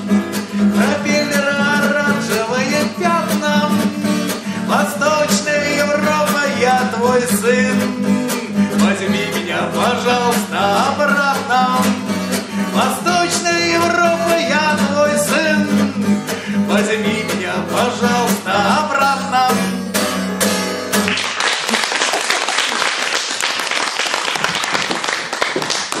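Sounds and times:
acoustic guitar: 0.0s - 22.2s
man singing: 0.3s - 19.9s
audience applause: 21.0s - 26.0s.

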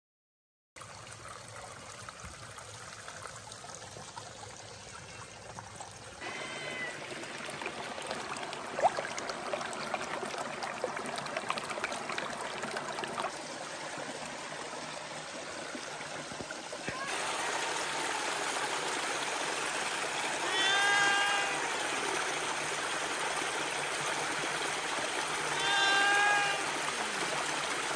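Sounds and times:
stream running over rocks: 0.8s - 27.9s
cat meowing: 20.4s - 21.6s, 25.6s - 26.7s.

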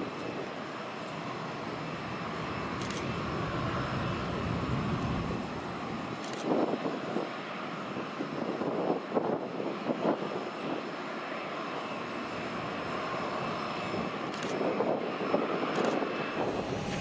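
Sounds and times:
jet engines idling: 0.0s - 8.9s, 9.6s - 17.0s
rumbling swells: 16.3s - 17.0s.

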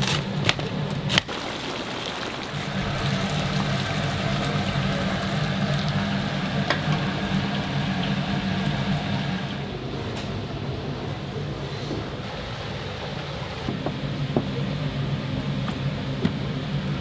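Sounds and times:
oil bubbling and sizzling: 1.1s - 9.8s.

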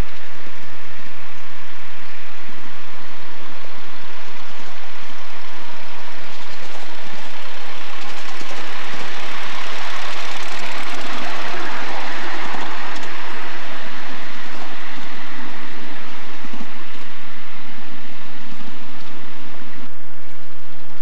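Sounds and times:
miniature steam locomotive passing: 5.7s - 18.8s.

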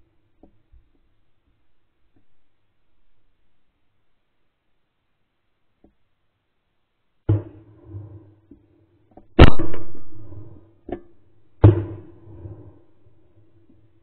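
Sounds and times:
shotgun shots echoing: 9.4s - 10.5s.

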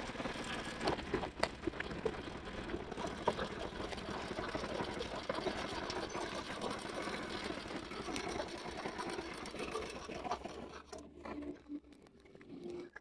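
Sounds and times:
small motorbike engine puttering: 0.0s - 9.0s.

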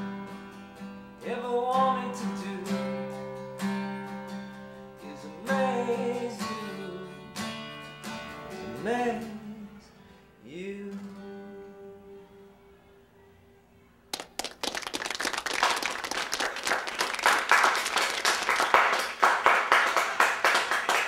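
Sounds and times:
audience applauding: 14.1s - 21.0s.

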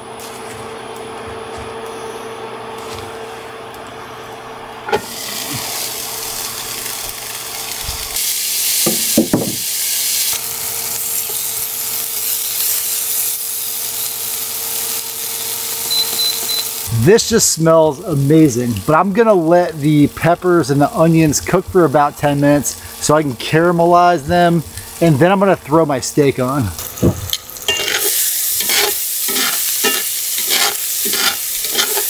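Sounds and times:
vegetables sizzling in a skillet: 5.0s - 20.2s, 21.3s - 25.0s, 26.8s - 32.0s
knock: 8.9s - 9.6s
steady hum: 15.9s - 32.0s.

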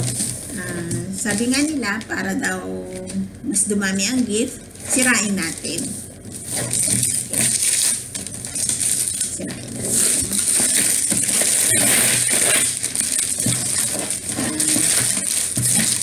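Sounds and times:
wrapping paper tearing and crumpling: 0.0s - 2.0s, 4.8s - 16.0s.

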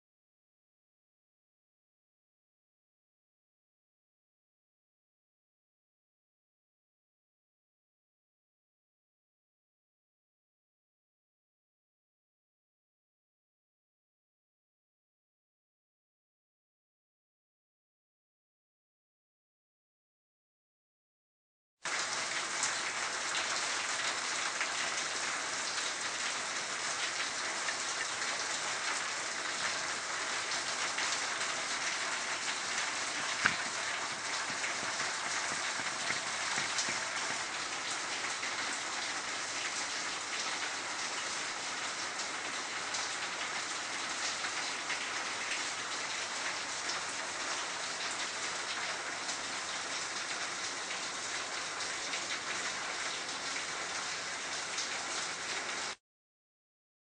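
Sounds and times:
water pouring and splashing: 21.9s - 56.0s.

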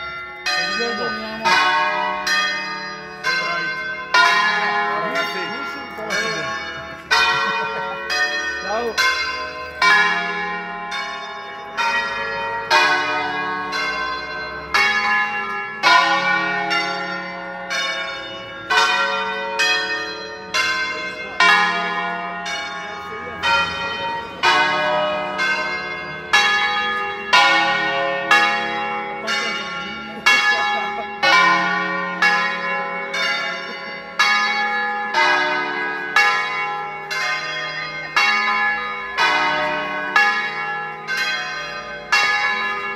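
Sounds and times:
church bells ringing: 0.0s - 42.9s.

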